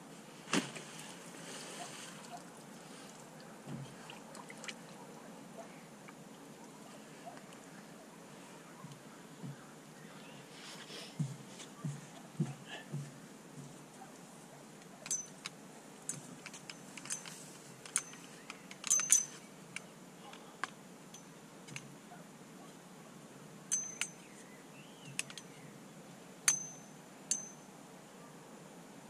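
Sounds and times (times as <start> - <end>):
metal tripod clinking: 15.0 - 19.9, 20.6 - 21.9, 23.7 - 24.3, 26.5 - 27.7.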